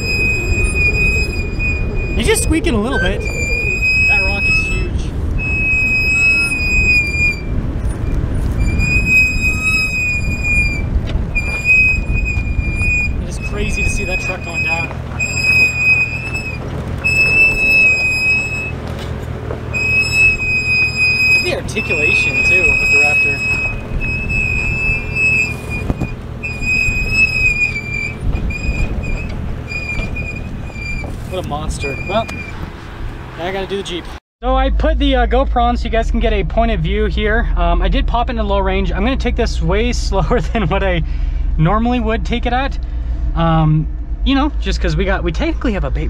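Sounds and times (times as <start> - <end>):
high steady squeal: 0.0 - 19.1, 19.7 - 32.7
low rumble: 0.0 - 33.4, 34.4 - 46.0.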